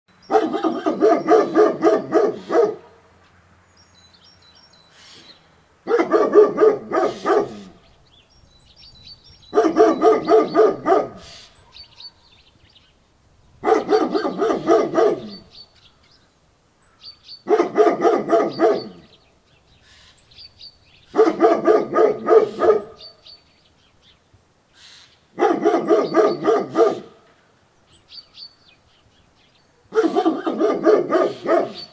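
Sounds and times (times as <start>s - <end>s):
faint birds chirping: 0.1s - 31.9s
dog barking in rapid volleys: 0.3s - 3.0s, 5.9s - 7.8s, 9.5s - 12.3s, 13.6s - 15.4s, 17.5s - 19.0s, 21.1s - 23.0s, 25.4s - 27.2s, 29.9s - 31.9s.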